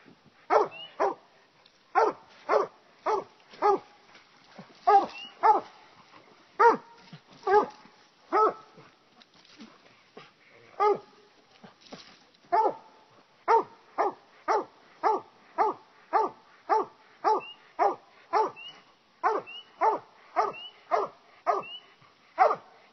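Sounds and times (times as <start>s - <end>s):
hound barking: 0.5s - 1.2s, 1.9s - 3.9s, 4.8s - 5.8s, 6.6s - 8.8s, 10.7s - 11.1s, 12.5s - 12.9s, 13.5s - 21.8s, 22.4s - 22.8s.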